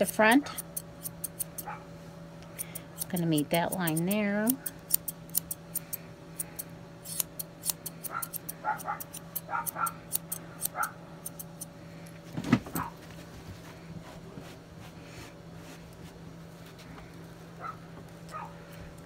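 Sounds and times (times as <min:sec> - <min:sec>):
scissors snipping hair: 0:00.0 - 0:01.7, 0:02.6 - 0:11.7.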